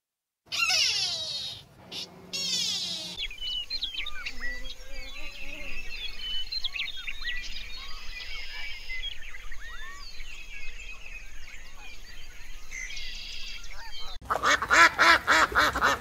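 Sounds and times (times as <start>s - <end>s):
small birds chirping: 0.5s - 14.2s
duck quacking: 14.2s - 16.0s.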